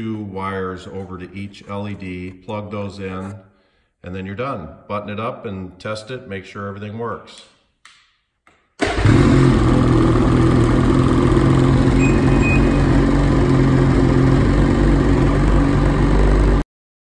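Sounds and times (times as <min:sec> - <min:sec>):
snowmobile engine idling: 0:09.0 - 0:16.6.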